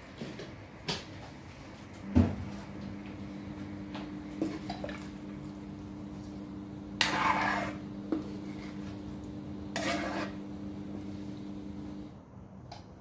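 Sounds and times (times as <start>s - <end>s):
metal ladle stirring in a wok: 7.0s - 8.8s, 9.7s - 10.5s
ladle scraping a pan: 7.0s - 9.0s, 9.6s - 10.7s.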